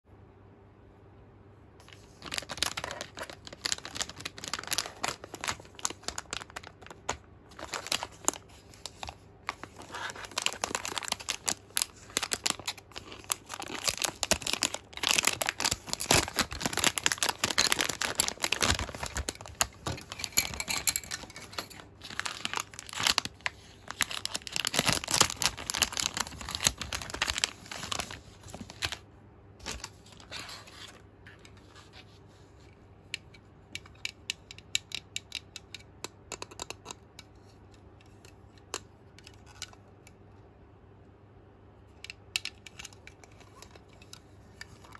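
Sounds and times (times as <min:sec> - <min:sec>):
plastic bags crinkling: 0:01.8 - 0:29.0.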